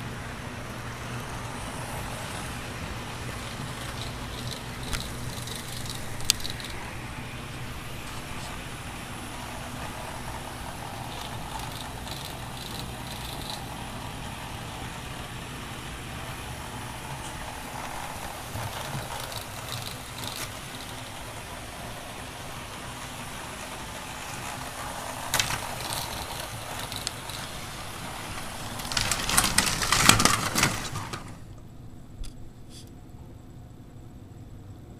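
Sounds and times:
model train whirring on track: 0:00.0 - 0:31.7
train cars clattering in crash: 0:24.0 - 0:31.5.

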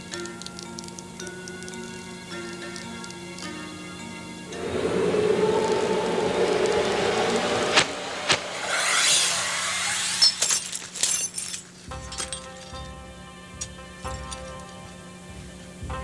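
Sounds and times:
dramatic music: 0:04.5 - 0:09.9
arrow whoosh: 0:04.5 - 0:10.2.

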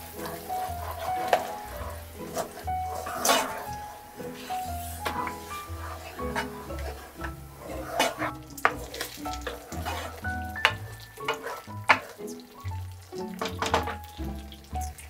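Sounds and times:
sauce sizzling in a pan: 0:00.0 - 0:15.0
utensil knocking against pan: 0:08.1 - 0:08.8, 0:09.4 - 0:12.1, 0:13.4 - 0:14.0.

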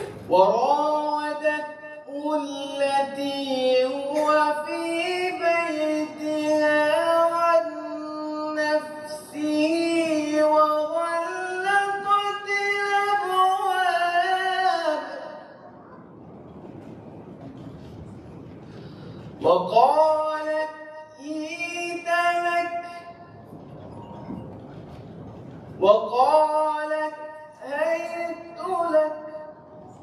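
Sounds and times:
man reciting melodically: 0:00.0 - 0:15.6, 0:19.4 - 0:23.4, 0:25.8 - 0:30.0.

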